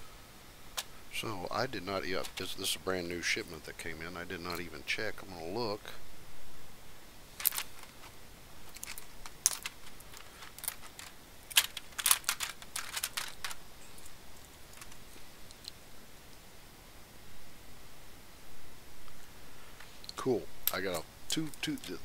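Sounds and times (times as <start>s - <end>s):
plastic tubes clicking: 8.7s - 14.1s.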